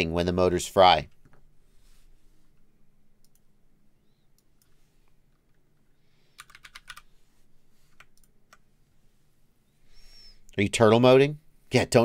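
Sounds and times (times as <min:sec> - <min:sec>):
faint keyboard typing: 0:02.6 - 0:03.5, 0:04.3 - 0:07.2, 0:07.8 - 0:08.7.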